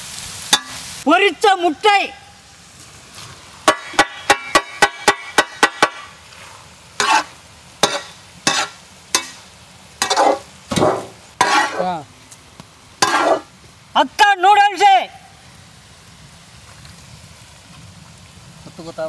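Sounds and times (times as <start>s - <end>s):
frying sizzle: 0.0s - 19.0s
metal ladle clanking on griddle: 0.5s - 0.9s, 3.6s - 6.1s, 7.0s - 11.9s, 13.0s - 13.5s
ladle scraping pan: 7.0s - 9.4s, 10.0s - 11.9s, 13.0s - 13.5s.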